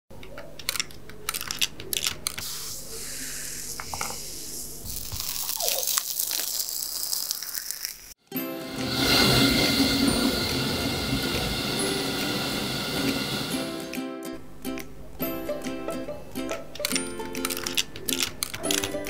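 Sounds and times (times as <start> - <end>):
gas torch flame hissing: 2.4 - 5.2, 8.7 - 14.0.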